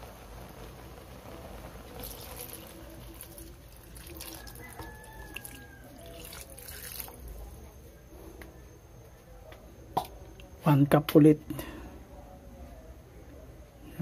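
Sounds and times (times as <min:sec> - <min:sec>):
water pouring into broth: 0:00.0 - 0:07.4.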